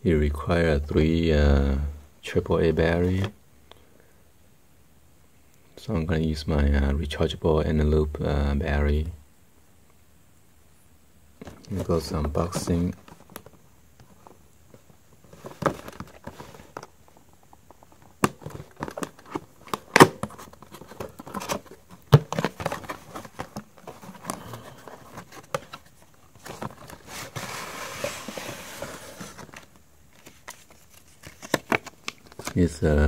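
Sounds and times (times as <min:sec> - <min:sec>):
cardboard tray sliding rustle: 0:20.2 - 0:29.7.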